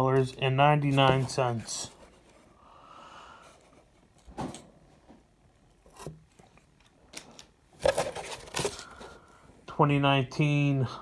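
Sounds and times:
plastic and cardboard rustling: 0.0s - 2.6s, 3.4s - 9.3s.

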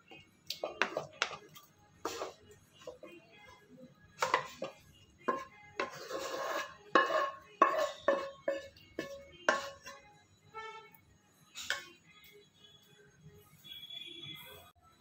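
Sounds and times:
metal spoon scraping steel jar: 5.3s - 10.0s.

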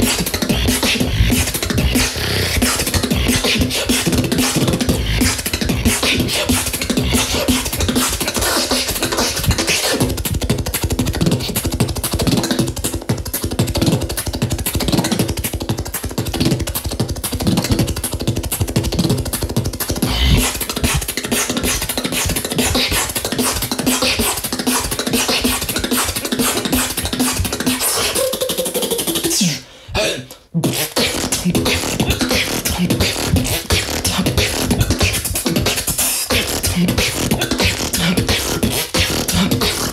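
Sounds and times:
humming bass tone: 0.0s - 3.7s
beatboxing drum and bass: 0.0s - 39.9s.

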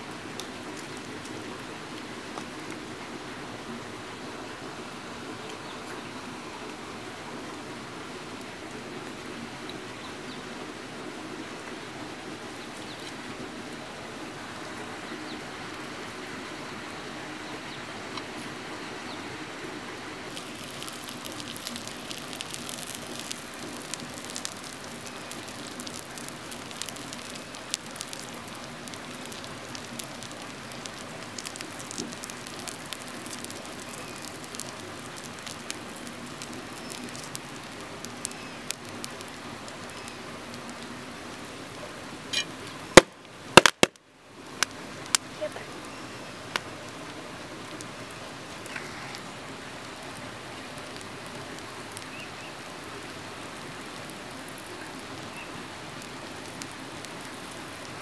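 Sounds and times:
fish sizzling on hot stone: 20.2s - 58.0s.

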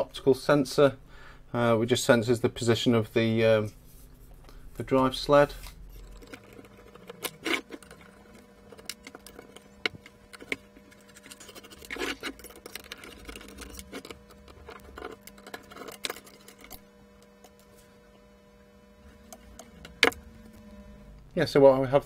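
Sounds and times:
faint steady hum: 0.0s - 22.0s
plastic and metal parts clicking: 6.0s - 16.8s.

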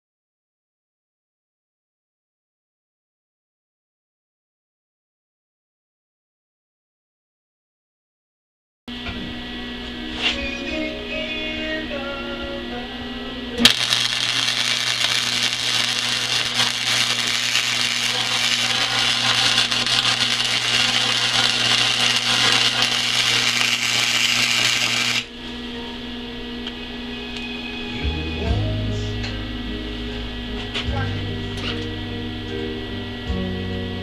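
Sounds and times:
welding arc crackling: 13.6s - 25.3s.

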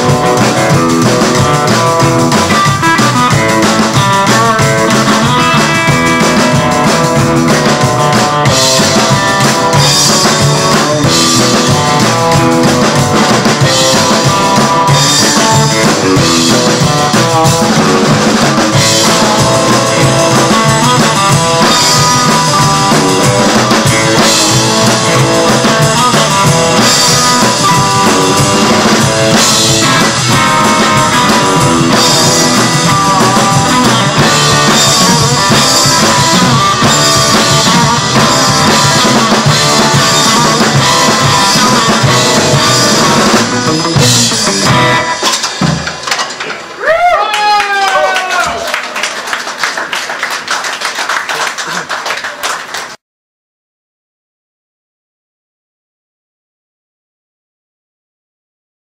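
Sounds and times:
upright double bass: 0.0s - 45.1s
electric guitar: 0.0s - 48.9s
drum kit: 0.0s - 49.2s
rockabilly band playing live: 0.0s - 53.0s.

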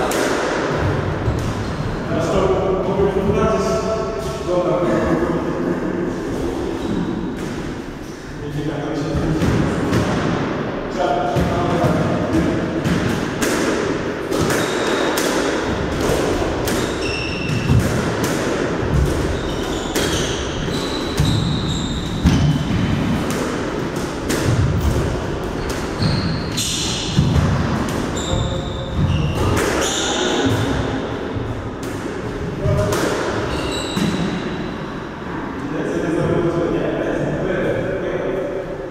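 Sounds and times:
racket hitting ball: 0.0s - 1.6s, 11.4s - 34.5s
squash ball hitting walls: 0.0s - 1.8s, 9.0s - 34.8s
shoes squeaking on wooden floor: 19.2s - 22.4s, 26.0s - 26.6s, 28.1s - 30.4s, 33.4s - 34.2s.

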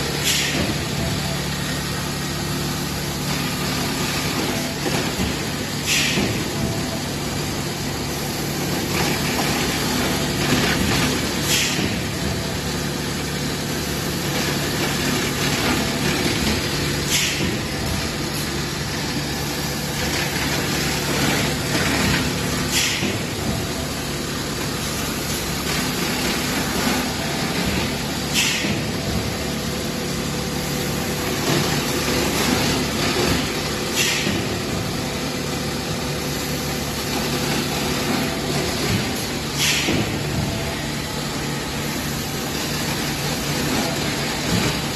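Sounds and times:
machine hum and rumble: 0.0s - 44.9s
short machine hiss: 39.6s - 40.0s.

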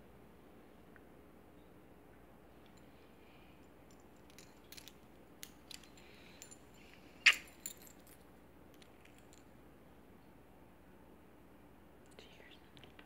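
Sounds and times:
dog tag jingling on collar: 3.9s - 9.5s.

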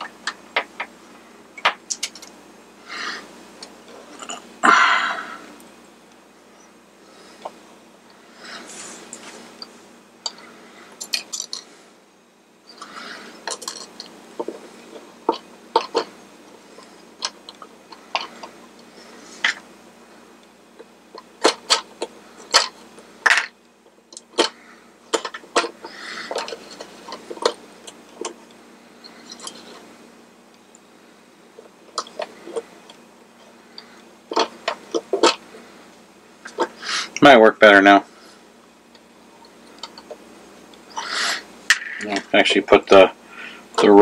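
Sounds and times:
small parts clicking and clinking: 1.6s - 2.4s, 9.6s - 11.7s, 12.7s - 16.1s
soft rustling: 8.2s - 10.9s.

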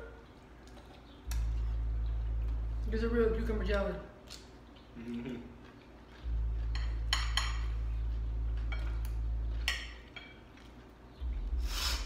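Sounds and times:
steady low hum: 0.0s - 12.0s
forks clinking on ceramic plates: 6.6s - 7.8s.

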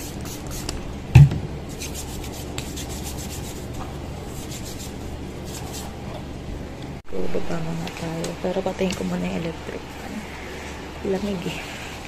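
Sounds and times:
dull thump: 1.1s - 1.5s
palms rubbing together: 1.7s - 6.0s.

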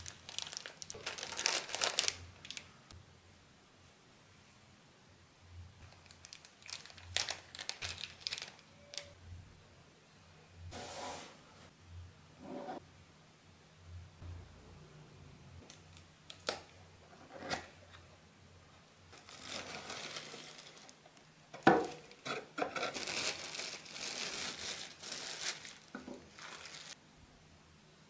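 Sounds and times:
packaging crinkling and rustling: 0.0s - 2.7s, 5.9s - 9.2s, 19.2s - 27.0s.

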